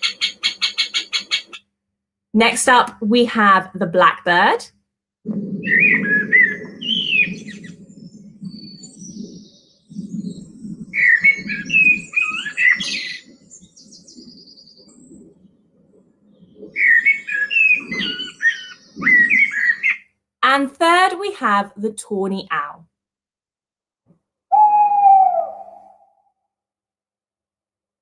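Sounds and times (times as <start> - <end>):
blackbird singing: 5.7 - 7.7, 11.0 - 13.2, 16.8 - 20.0, 24.5 - 26.2.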